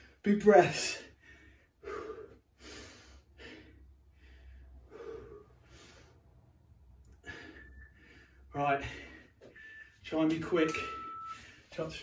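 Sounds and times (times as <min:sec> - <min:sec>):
man breathing hard: 0:01.0 - 0:09.9.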